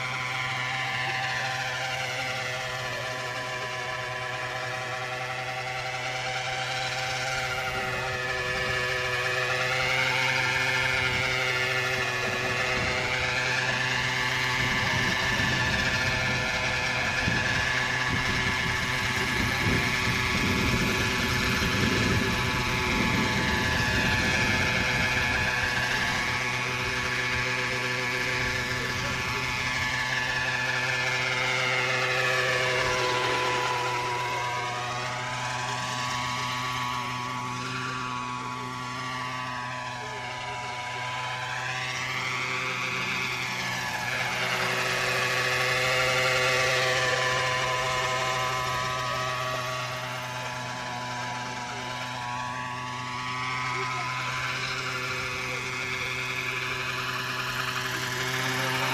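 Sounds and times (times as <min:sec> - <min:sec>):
model helicopter engine and rotor: 0:00.0 - 0:58.9.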